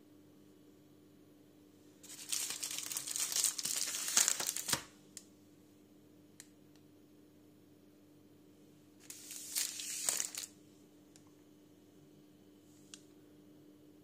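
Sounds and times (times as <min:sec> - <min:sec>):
plastic snack packets crinkling: 0:02.0 - 0:04.9, 0:09.0 - 0:10.5.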